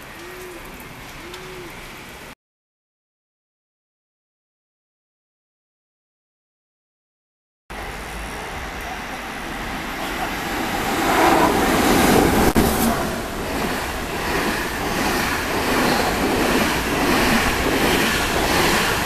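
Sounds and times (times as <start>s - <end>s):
train wheels rumbling on rail: 7.7s - 19.0s.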